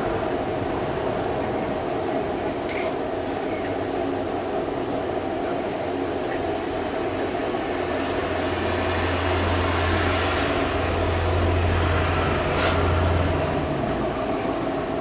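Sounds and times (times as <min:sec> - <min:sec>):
brief hiss: 0:12.5 - 0:12.9.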